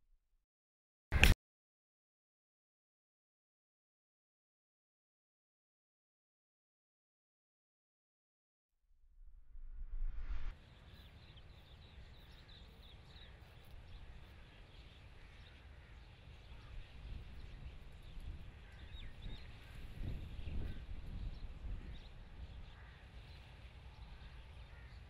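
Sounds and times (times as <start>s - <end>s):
wind rumble on microphone: 9.1s - 12.4s, 13.4s - 25.0s.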